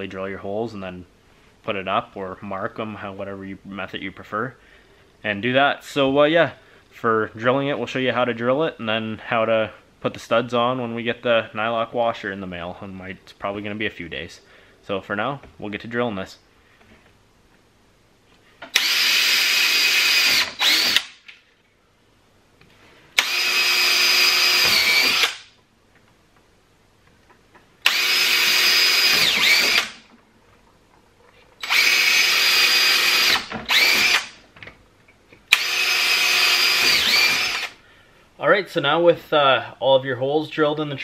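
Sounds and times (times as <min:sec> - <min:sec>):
cordless drill whining: 0:18.7 - 0:21.1, 0:23.2 - 0:25.5, 0:27.8 - 0:30.1, 0:31.6 - 0:34.4, 0:35.5 - 0:37.8.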